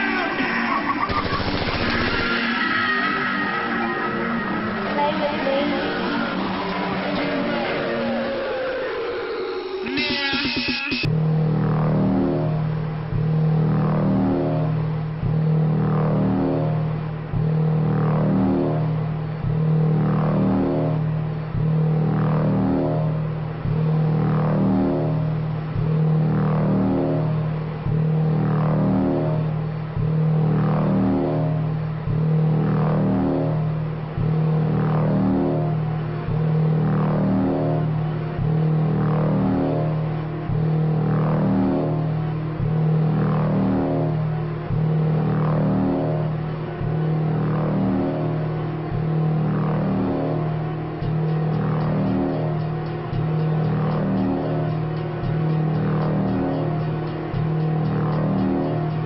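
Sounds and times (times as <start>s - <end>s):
electronic dance music: 0.0s - 11.1s, 51.0s - 59.0s
synth bass phrase: 0.0s - 59.0s
synth sweep: 0.0s - 59.0s.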